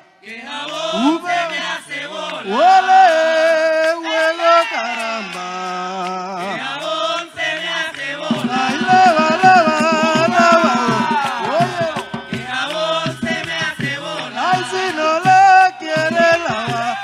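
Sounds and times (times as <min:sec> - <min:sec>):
voices singing long notes: 0:00.0 - 0:17.0
hand drums: 0:06.4 - 0:17.0
fast run of drum strokes: 0:08.0 - 0:17.0.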